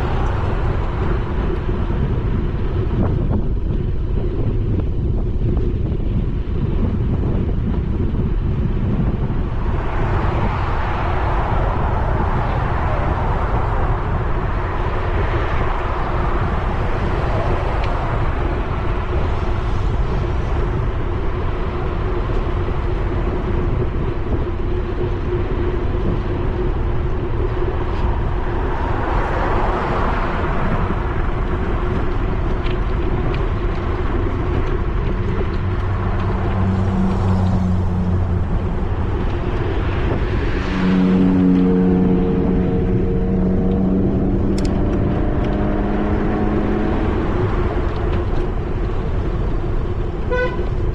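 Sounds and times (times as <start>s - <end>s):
cars passing: 0.0s - 50.9s
wind rumbling on microphone: 0.0s - 50.9s.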